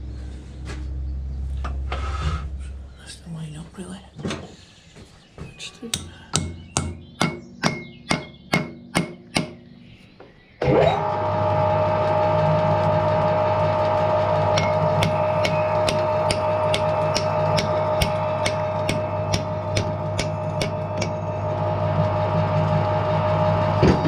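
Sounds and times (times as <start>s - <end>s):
steady droning: 0.0s - 24.0s
hammer blows: 14.5s - 21.4s.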